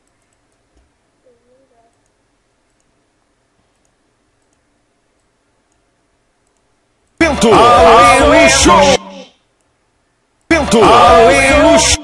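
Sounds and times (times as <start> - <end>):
faint computer mouse clicks: 0.0 - 0.9, 1.9 - 3.0, 3.6 - 7.2
faint background voice: 1.2 - 2.0.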